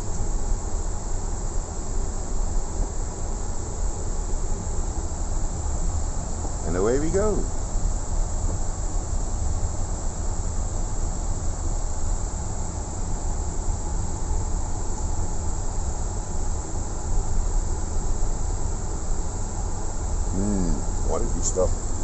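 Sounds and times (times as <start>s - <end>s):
constant high hiss: 0.0s - 22.0s
low aircraft rumble: 16.3s - 22.0s.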